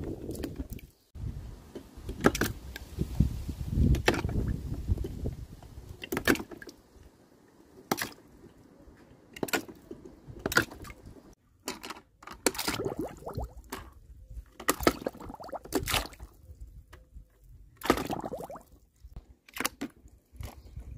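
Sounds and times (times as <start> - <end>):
low wind rumble: 0.0 - 6.0
toy cars splashing into water: 17.8 - 18.6.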